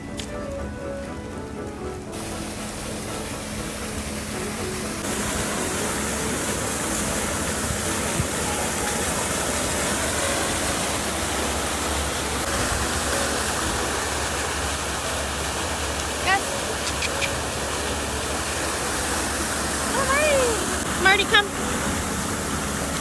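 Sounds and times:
fountain water splashing: 0:00.0 - 0:23.0.

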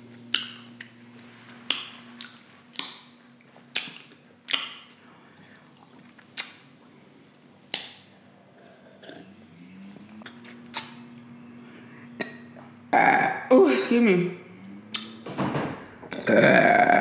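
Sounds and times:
low steady hum: 0:00.0 - 0:17.0
wet mouth smacks: 0:00.3 - 0:01.0, 0:01.6 - 0:06.8, 0:07.7 - 0:08.1, 0:10.7 - 0:11.0.

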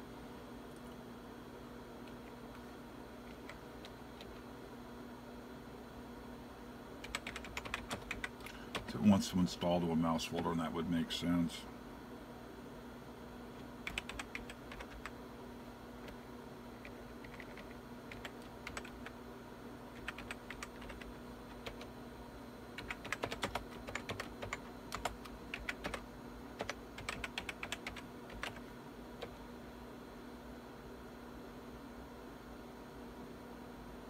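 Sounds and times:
steady low hum: 0:00.0 - 0:34.0
typing on keyboard: 0:07.0 - 0:08.9, 0:13.8 - 0:15.1, 0:16.8 - 0:19.1, 0:19.9 - 0:21.9, 0:22.8 - 0:26.0, 0:26.6 - 0:28.6.

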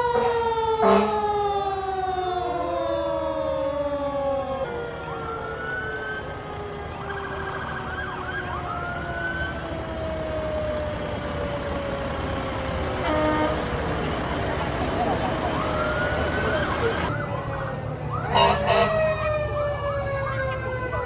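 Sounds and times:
emergency sirens wailing: 0:00.0 - 0:21.0
horn blast: 0:00.2 - 0:01.2, 0:13.0 - 0:13.7, 0:18.3 - 0:19.0.

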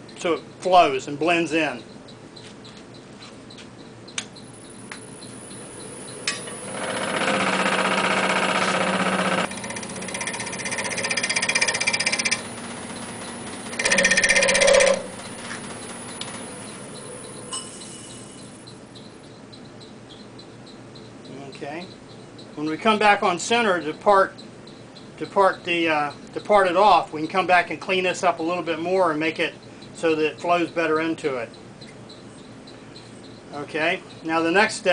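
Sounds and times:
lathe humming: 0:04.9 - 0:18.6
turning tool rattling chatter: 0:06.4 - 0:17.4.

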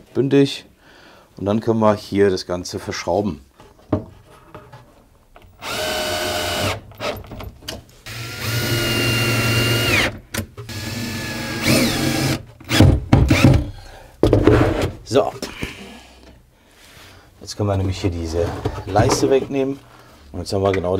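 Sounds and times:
cordless drill driving screws: 0:05.6 - 0:07.2, 0:08.1 - 0:13.5.

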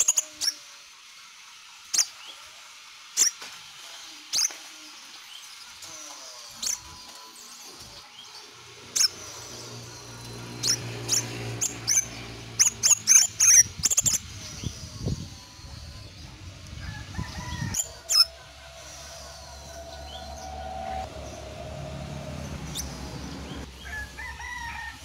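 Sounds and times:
sunbird chirping: 0:06.5 - 0:17.0, 0:17.6 - 0:24.0.

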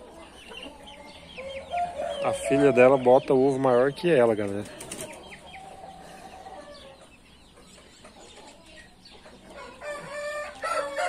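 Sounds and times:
rooster crowing: 0:09.6 - 0:11.0.

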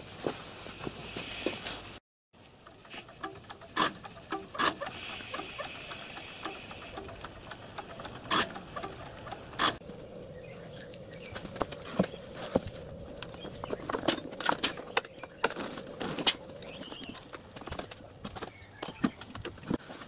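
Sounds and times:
soft steam hiss: 0:00.2 - 0:02.0, 0:04.6 - 0:13.0
steam locomotive mechanical ticking: 0:02.4 - 0:09.8.

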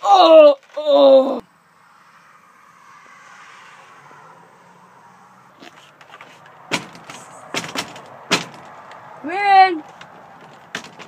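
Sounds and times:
sharp knocks and clicks: 0:06.0 - 0:09.0, 0:09.8 - 0:11.0.

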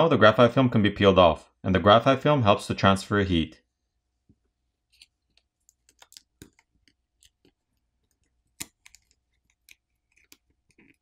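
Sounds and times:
film peeling with crackles and clicks: 0:04.9 - 0:11.0.

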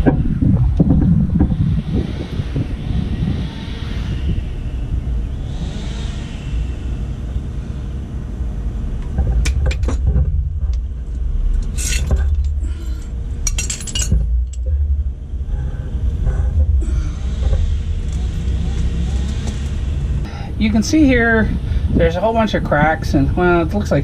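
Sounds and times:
steady low rumble: 0:00.0 - 0:24.0
metal hand tools clinking: 0:11.6 - 0:14.6.

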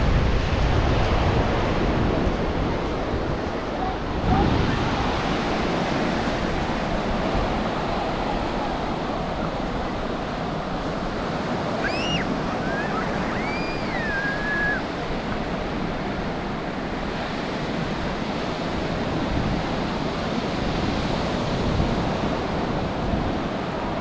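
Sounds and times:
waves breaking on sandy beach: 0:00.0 - 0:24.0
faint whistle-like calls: 0:11.8 - 0:14.9.

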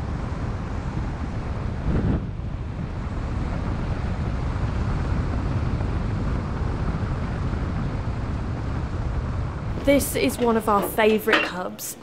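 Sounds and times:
car engine and tyre rumble: 0:00.0 - 0:09.9
wind noise: 0:00.0 - 0:11.5.

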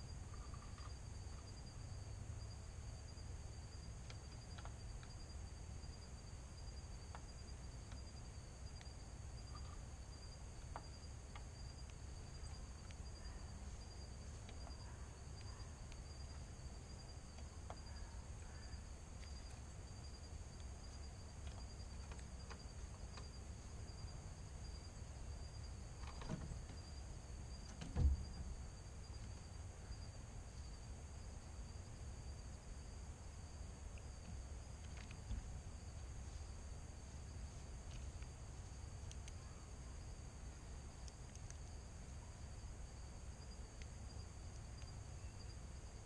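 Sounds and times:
insect chorus trilling: 0:00.0 - 0:46.0
low outdoor rumble: 0:00.0 - 0:46.0
dull thump: 0:27.7 - 0:28.5.

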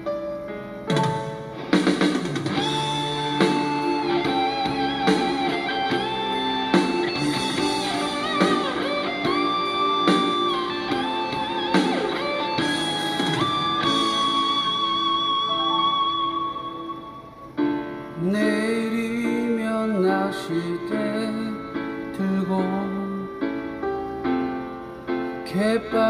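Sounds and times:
guitar chords: 0:00.0 - 0:23.6
drum hits: 0:00.9 - 0:06.2
electric guitar lead with bent notes: 0:00.9 - 0:18.1.

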